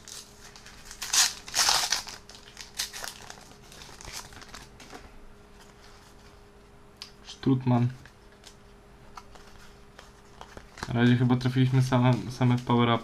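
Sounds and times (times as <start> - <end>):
foil sachet crinkling: 0.0 - 4.7
wrapper and cards rustling: 0.0 - 6.3.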